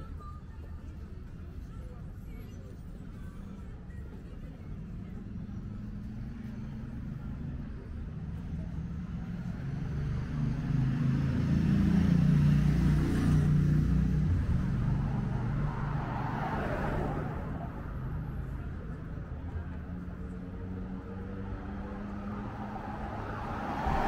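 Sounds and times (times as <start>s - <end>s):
street traffic: 0.0s - 24.0s
passing car engine hum: 9.2s - 24.0s
tyre rush of passing car: 9.8s - 18.4s, 20.6s - 24.0s.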